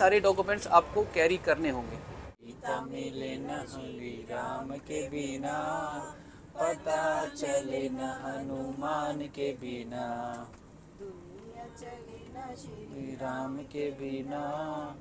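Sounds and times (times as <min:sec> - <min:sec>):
people singing devotional song: 0:02.4 - 0:15.0.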